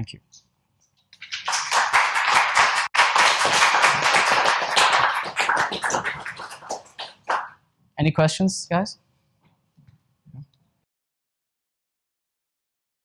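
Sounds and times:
audience applauding: 1.2s - 7.6s.

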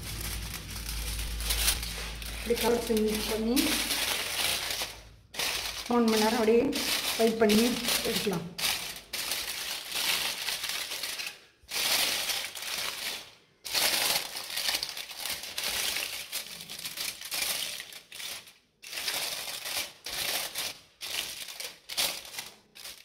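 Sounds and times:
aluminium foil crinkling: 0.0s - 23.0s.

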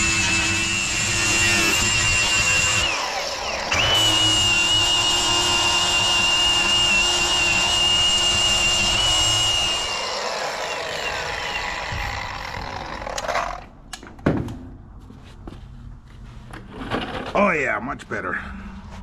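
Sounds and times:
angle grinder grinding steel: 0.0s - 13.6s.

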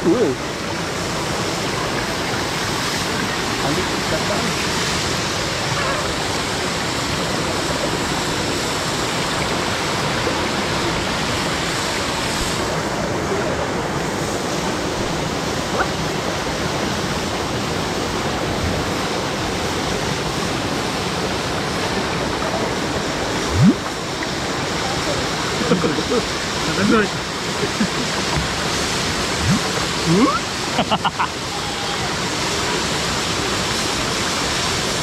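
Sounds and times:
waterfall rushing: 0.0s - 35.0s
brief rising sound: 23.5s - 23.9s.

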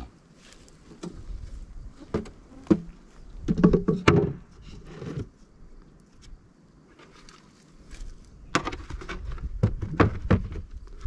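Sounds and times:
wooden beehive box knocks: 2.1s - 4.4s.

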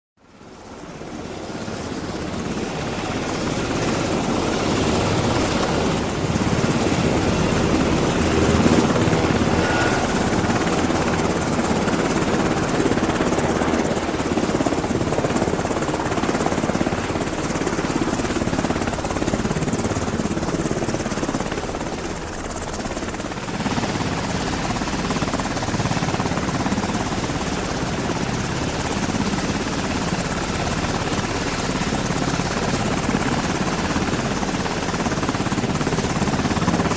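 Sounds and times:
helicopter rotor and engine: 0.2s - 36.9s.

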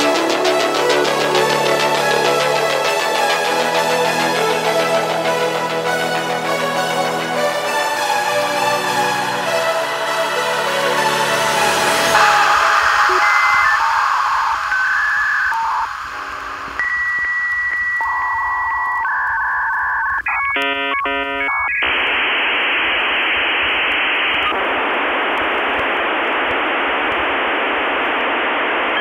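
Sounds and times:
static hiss: 10.2s - 29.0s
chirping tones: 12.2s - 21.9s
electronic beeps and tones: 12.2s - 23.0s.

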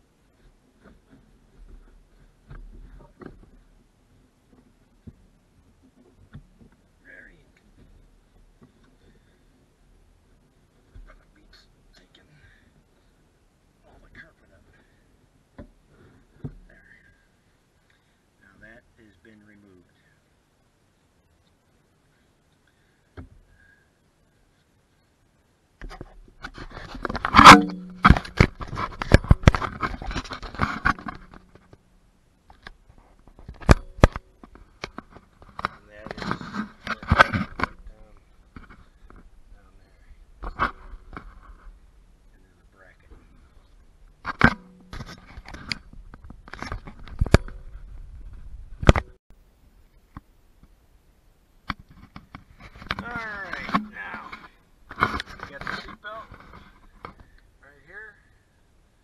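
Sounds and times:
handling knocks and scrapes: 0.3s - 6.9s, 25.8s - 31.9s, 32.5s - 41.9s, 43.1s - 49.2s, 51.7s - 57.4s.

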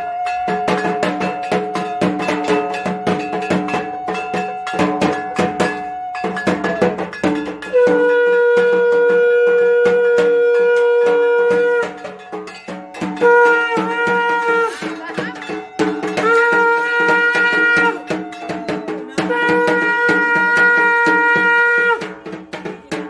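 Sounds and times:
hand bell ringing: 0.0s - 9.2s, 10.2s - 21.5s
held tone: 0.0s - 20.9s
conch shell blast: 7.6s - 12.5s, 13.1s - 18.6s, 19.2s - 22.1s.

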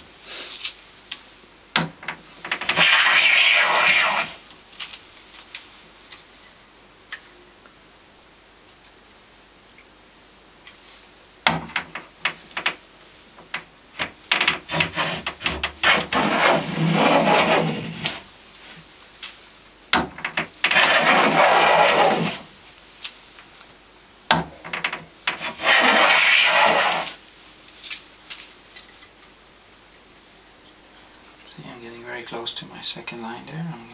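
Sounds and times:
plane scraping along wood: 2.5s - 4.4s, 14.3s - 18.2s, 20.6s - 22.5s, 24.7s - 27.2s
sharp knocks: 11.5s - 12.8s.

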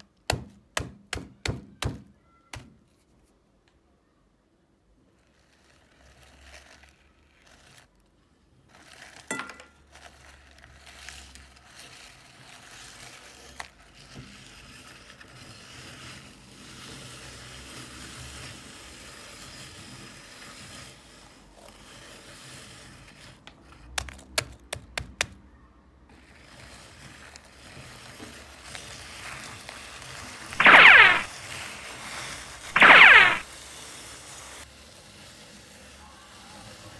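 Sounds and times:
meat grinder crunching biscuits: 5.0s - 22.6s
sharp cracks: 30.6s - 31.3s, 32.6s - 33.4s.

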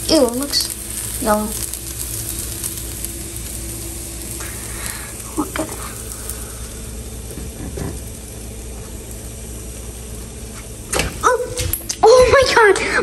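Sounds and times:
gas burner hissing: 0.0s - 13.0s
person speaking: 5.2s - 6.0s.

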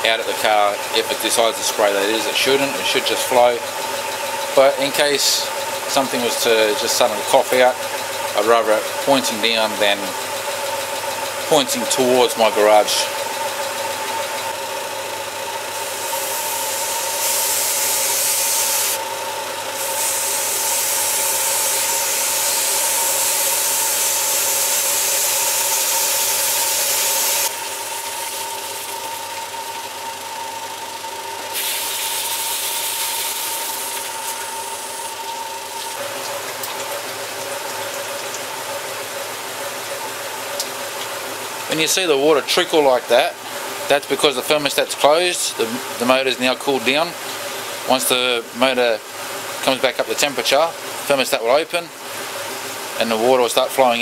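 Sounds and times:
car engine idling with whine: 0.0s - 17.2s, 19.0s - 19.8s, 27.5s - 31.6s
coolant pouring and splashing: 0.0s - 54.0s.

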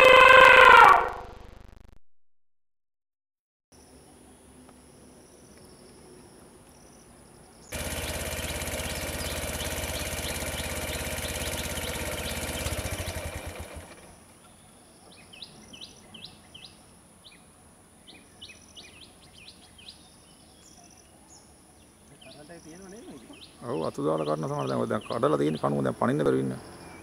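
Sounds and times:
birds chirping: 4.3s - 27.0s
engine running: 7.7s - 14.3s.

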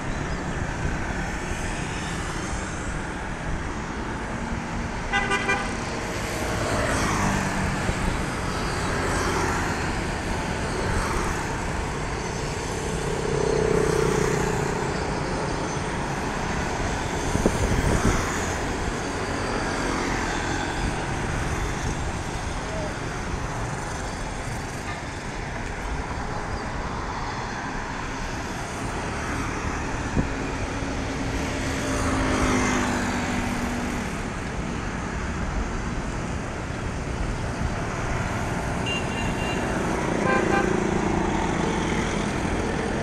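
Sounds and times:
scooters and cars passing: 0.0s - 43.0s
vehicle horn short beeps: 38.8s - 39.7s.

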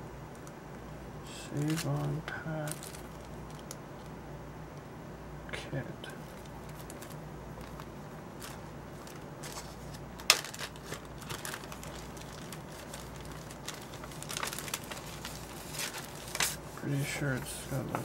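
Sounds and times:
low steady hum: 0.0s - 18.0s
packaging crinkling: 1.5s - 4.2s, 6.3s - 16.6s.

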